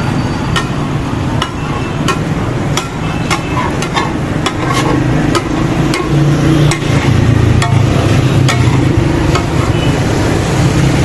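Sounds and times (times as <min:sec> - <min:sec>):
spatulas clanking on griddle: 0:01.4 - 0:10.0.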